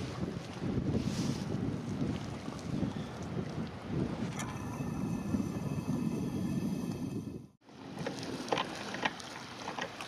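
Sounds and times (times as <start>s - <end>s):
small waves lapping: 0.0s - 5.5s, 7.6s - 10.0s
wind rumbling on microphone: 0.0s - 9.6s.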